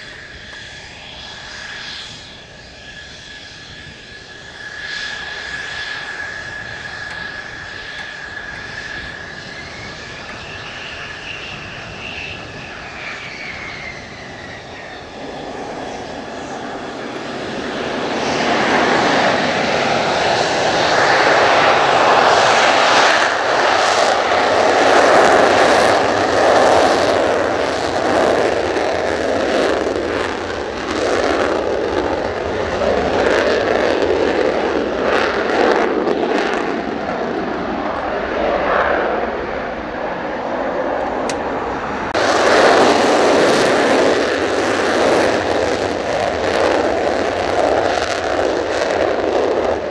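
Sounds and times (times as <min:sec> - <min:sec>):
jet engine whining and roaring: 0:00.0 - 0:49.9.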